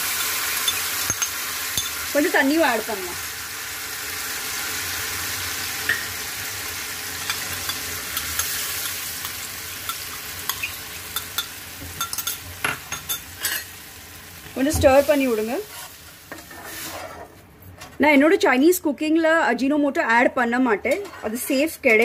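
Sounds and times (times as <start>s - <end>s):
sauce sizzling in hot oil: 0.0s - 17.2s
spoon scraping a pan: 7.2s - 13.7s, 15.6s - 17.4s.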